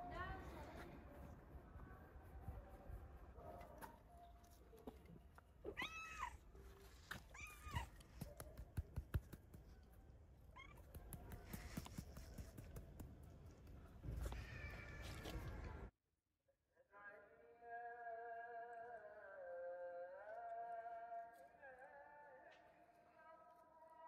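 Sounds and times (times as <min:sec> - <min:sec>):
cat meowing: 0:05.7 - 0:06.4, 0:07.3 - 0:08.0.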